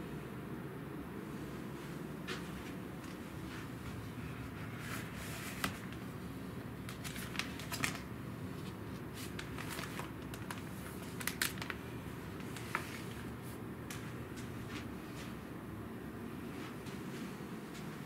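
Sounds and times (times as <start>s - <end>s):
low room hum: 0.0s - 18.0s
paper pages rustling: 3.0s - 6.2s, 6.8s - 15.4s.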